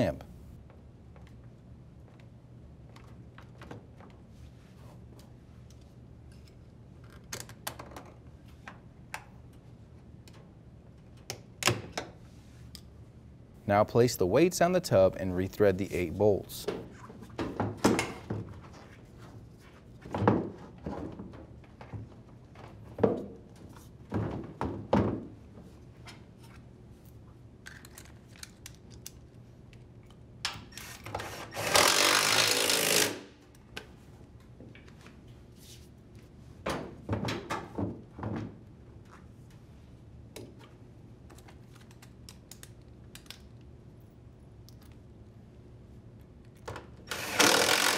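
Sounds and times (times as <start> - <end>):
cordless impact driver running: 31.2 - 33.2, 47.1 - 47.9.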